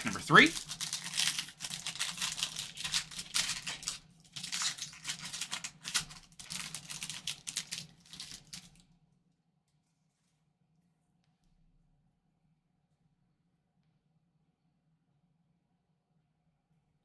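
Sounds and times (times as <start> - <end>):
foil wrapper crinkling and tearing: 0.0 - 8.8.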